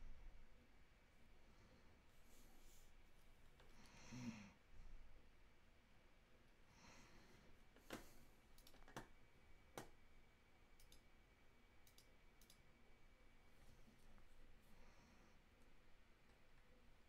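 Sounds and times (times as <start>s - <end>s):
soft computer clicks: 7.8s - 10.0s, 10.7s - 11.1s, 11.8s - 12.7s.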